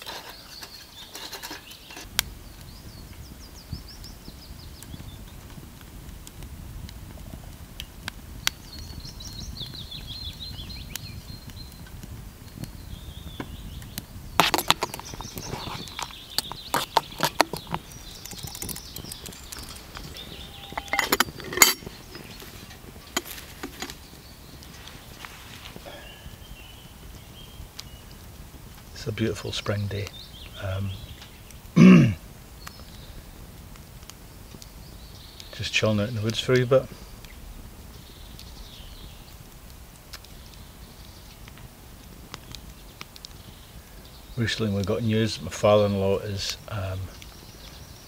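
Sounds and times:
birds singing: 0.0 - 6.4, 7.1 - 48.0
spoon clinking against metal pot: 20.5 - 21.9.

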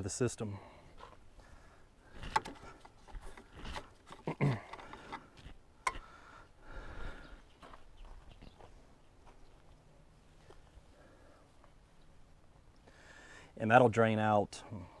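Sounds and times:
handling clicks and knocks: 2.2 - 6.0.

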